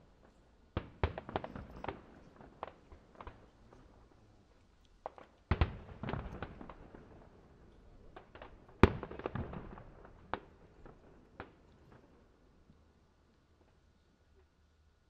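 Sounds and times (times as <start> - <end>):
distant fireworks bangs echoing: 0.0 - 4.1, 5.0 - 12.2.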